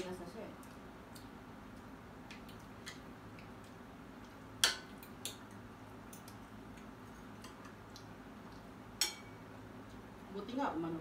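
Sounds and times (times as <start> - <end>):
cutlery clinking on plates: 9.0 - 9.4.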